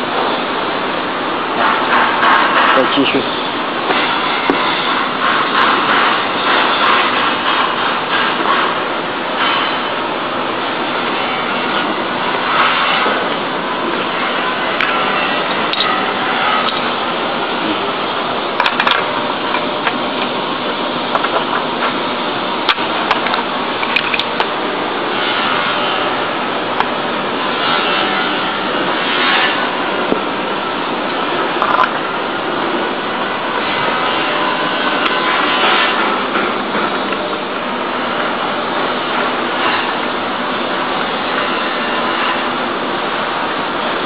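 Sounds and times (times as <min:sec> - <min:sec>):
workshop noise: 0:00.0 - 0:44.0
sharp clicks and knocks: 0:18.5 - 0:20.4, 0:21.1 - 0:22.0, 0:22.6 - 0:24.6, 0:31.6 - 0:32.0.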